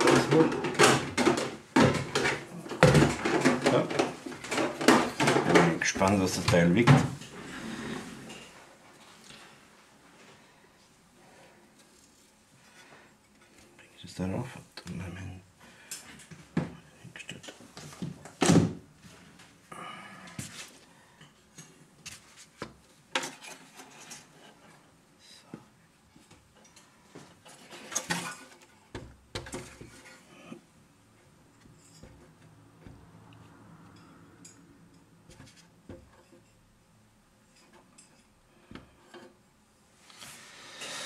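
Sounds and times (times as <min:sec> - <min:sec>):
hard parts knocking and rattling: 0:00.0 - 0:07.5.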